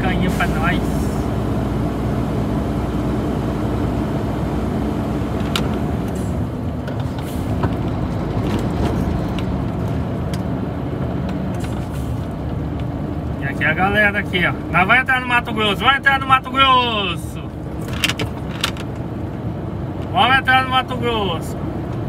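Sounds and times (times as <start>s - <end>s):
road noise: 0.0s - 22.0s
truck engine drone: 0.0s - 22.0s
sharp clicks and rattles: 17.6s - 19.1s.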